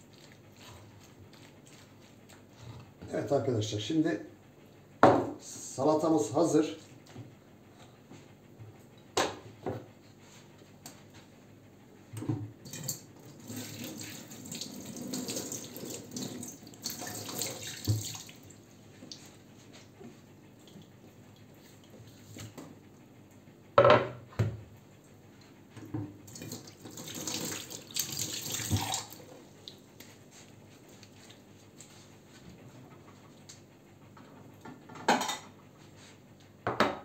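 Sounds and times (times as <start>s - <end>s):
tap running into sink: 17.0s - 18.2s.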